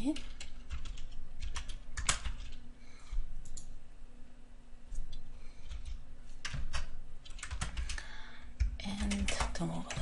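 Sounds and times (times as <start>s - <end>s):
keyboard keystrokes clicking: 0.0s - 2.6s
faint low hum: 0.0s - 10.0s.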